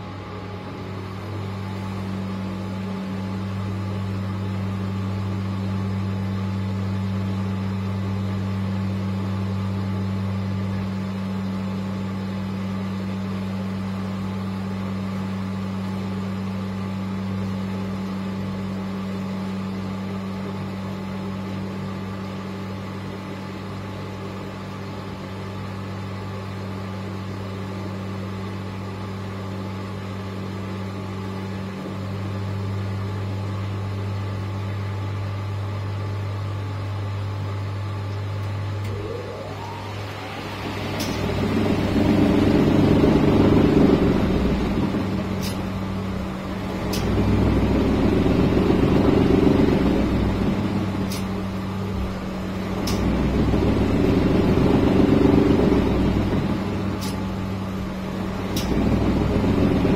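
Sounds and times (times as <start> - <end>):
washing machine tumbling laundry: 37.4 - 59.9.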